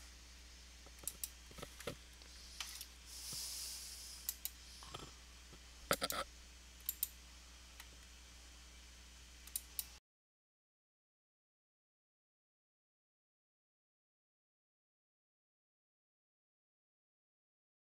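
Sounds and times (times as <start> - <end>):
faint electrical hum: 0.0 - 10.0
soft hiss: 0.0 - 10.0
computer mouse clicking: 0.9 - 1.7, 6.8 - 7.1, 9.4 - 9.9.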